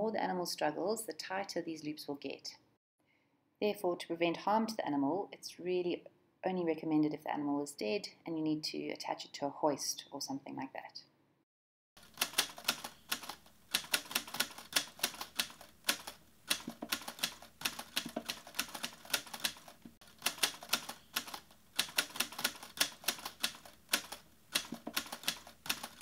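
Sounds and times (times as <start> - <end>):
typewriter keys clacking: 12.0 - 26.0.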